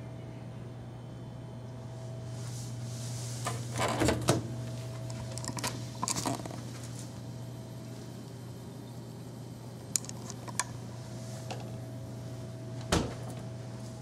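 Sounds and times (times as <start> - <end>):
steady low hum: 0.0 - 14.0
fridge door clicks and knocks: 3.8 - 4.5, 12.9 - 13.4.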